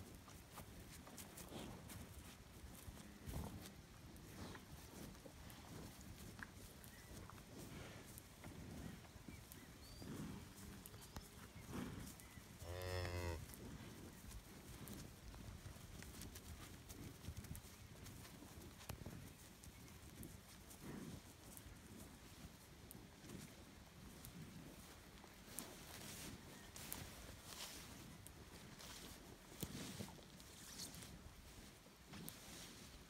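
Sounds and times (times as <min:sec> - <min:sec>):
cow mooing: 0:12.7 - 0:13.4.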